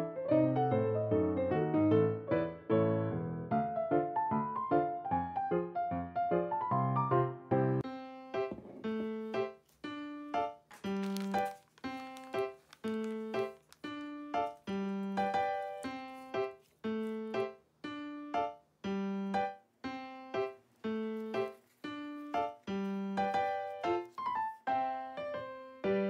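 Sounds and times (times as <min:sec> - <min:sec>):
light keyboard tune: 0:06.4 - 0:26.0.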